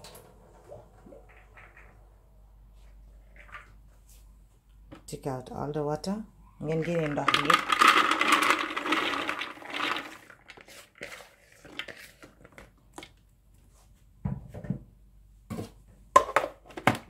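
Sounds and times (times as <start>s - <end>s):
peas rattling into plastic bowl: 6.6s - 13.1s.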